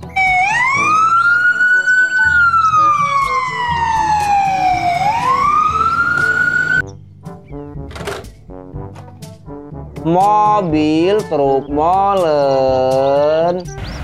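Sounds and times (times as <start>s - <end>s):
ambulance siren wailing: 0.0s - 6.8s
light background music: 0.0s - 14.0s.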